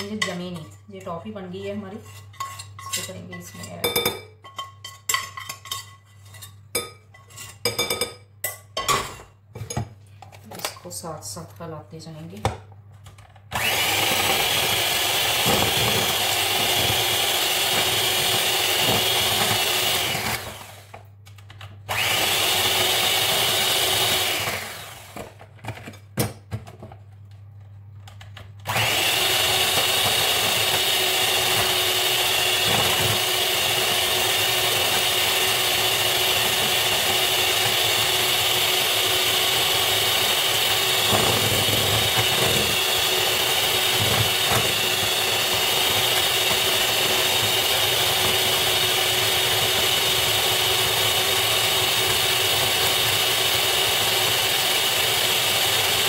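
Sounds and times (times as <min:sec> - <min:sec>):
electric mixer whipping cream: 0:13.5 - 0:21.0, 0:21.9 - 0:25.3, 0:28.6 - 0:56.0.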